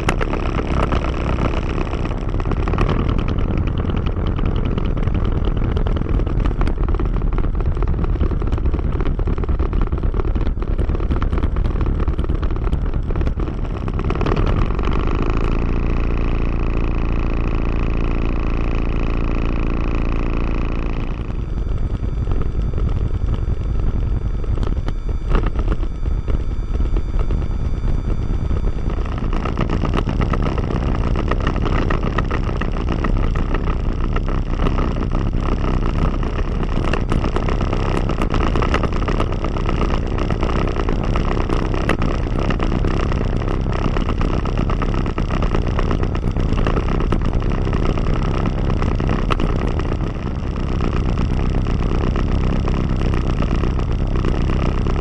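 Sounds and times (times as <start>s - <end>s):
aircraft engine and propeller drone: 0.0s - 7.2s, 20.0s - 49.5s.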